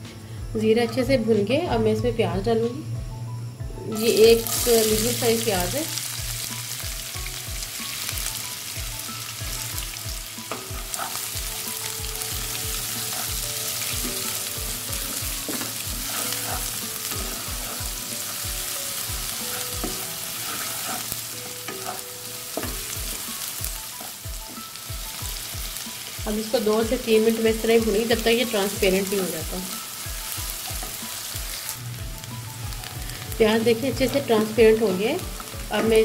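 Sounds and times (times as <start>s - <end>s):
onion sizzling in hot oil: 3.8s - 36.0s
wooden spatula stirring: 12.3s - 22.0s.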